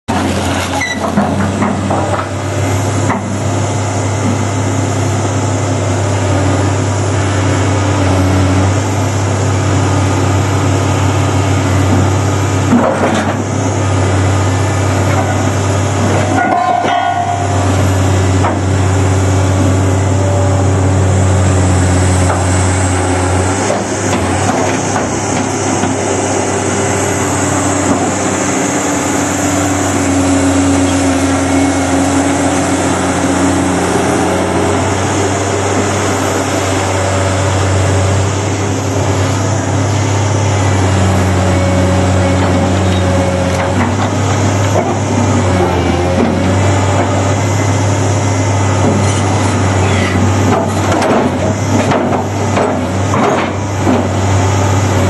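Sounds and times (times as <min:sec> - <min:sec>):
excavator diesel engine running: 0:00.1 - 0:55.0
metal clanking and scraping: 0:16.0 - 0:17.5.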